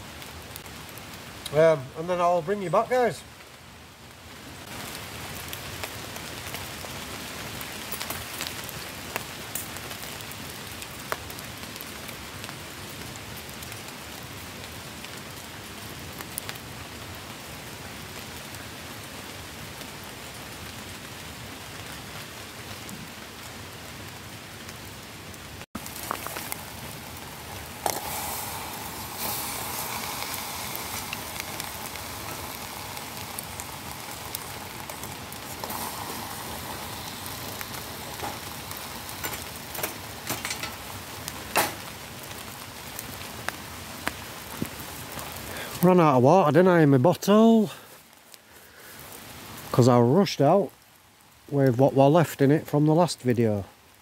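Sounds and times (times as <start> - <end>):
rain on leaves: 0.0 - 54.0
wood fire crackling: 0.0 - 54.0
logs sizzling in water: 25.8 - 42.0.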